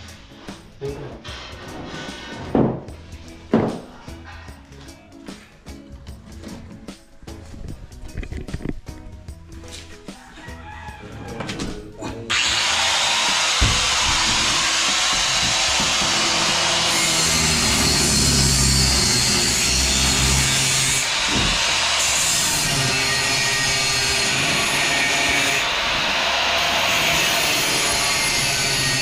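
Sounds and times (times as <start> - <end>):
power saw cutting: 12.2 - 29.0.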